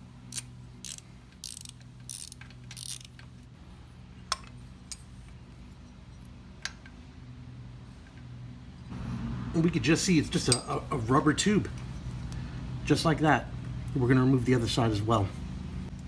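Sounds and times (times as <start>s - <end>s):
ratchet wrench clicking: 0.3s - 3.3s.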